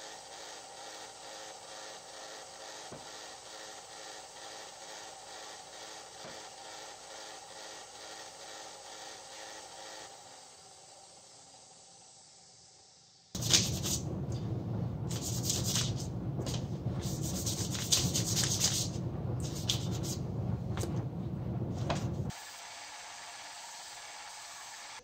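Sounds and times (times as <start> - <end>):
faint machine hum: 13.4 - 22.3.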